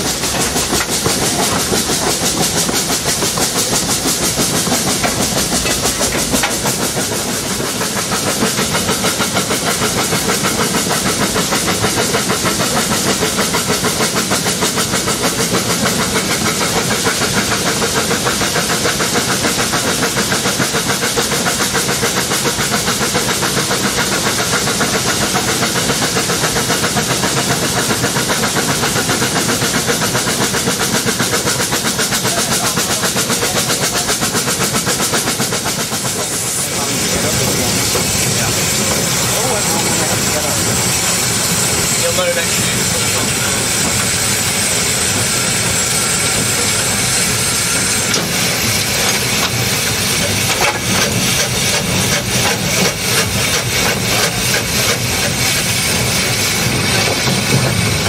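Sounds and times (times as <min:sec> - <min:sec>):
steam hissing: 0:00.0 - 0:58.0
steam locomotive exhaust beat: 0:00.0 - 0:58.0.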